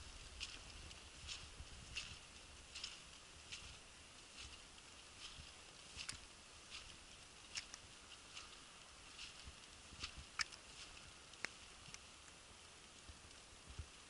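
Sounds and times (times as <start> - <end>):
low hiss: 0.0 - 14.0
sleet ticking on microphone: 9.3 - 10.7.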